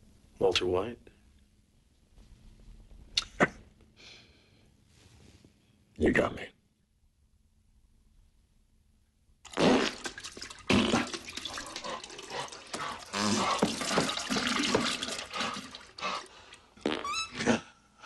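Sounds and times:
water splashing in toilet bowl: 9.5s - 16.6s.

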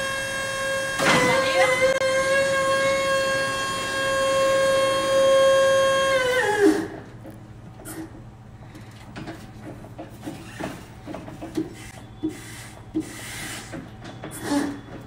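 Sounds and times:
electric truck humming: 0.0s - 7.2s.

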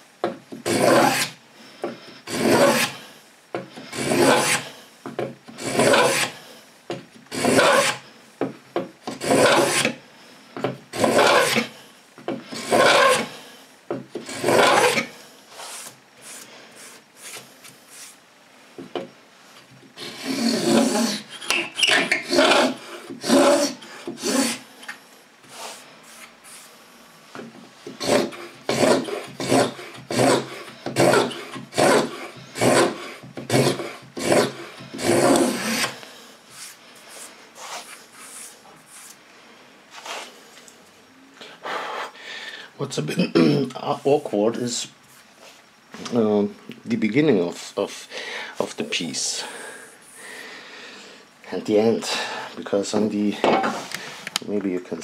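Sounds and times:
scraping tool on wood: 0.6s - 3.0s, 3.8s - 4.7s, 5.5s - 6.4s, 7.3s - 8.0s, 9.1s - 10.0s, 10.6s - 11.7s, 12.3s - 13.3s, 14.2s - 18.2s, 20.0s - 24.6s, 27.9s - 39.2s.

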